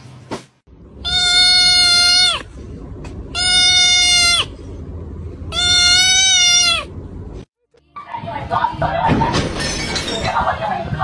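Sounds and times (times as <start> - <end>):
kitten crying: 1.0 - 2.5, 3.3 - 4.5, 5.5 - 6.9.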